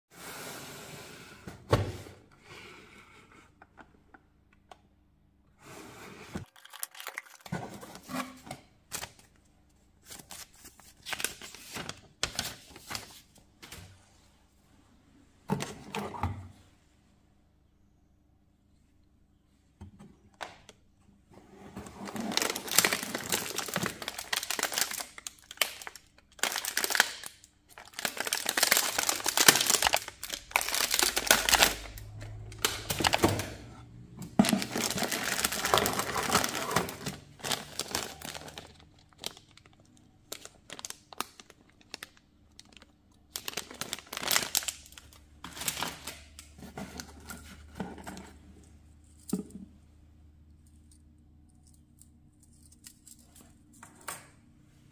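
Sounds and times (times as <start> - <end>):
plastic packaging crinkling: 6.4 - 7.5, 22.0 - 33.4, 34.4 - 47.1.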